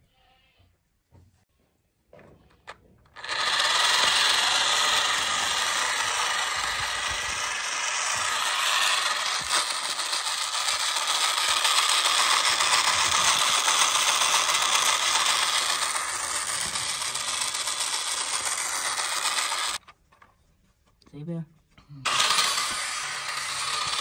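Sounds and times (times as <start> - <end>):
toy train motor whirring: 3.0 - 19.9, 22.0 - 24.0
toy train wheels rattling: 3.0 - 19.9, 22.0 - 24.0.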